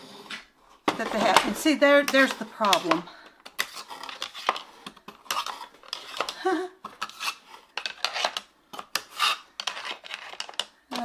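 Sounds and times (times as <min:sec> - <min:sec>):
plastic trays clattering on wood: 0:00.9 - 0:03.0.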